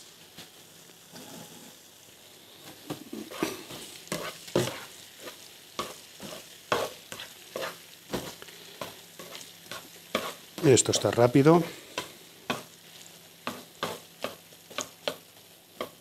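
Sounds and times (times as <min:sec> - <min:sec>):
onion sizzling in frying pan: 0:00.0 - 0:16.0
utensil scraping against pan: 0:03.2 - 0:07.8, 0:09.2 - 0:11.2.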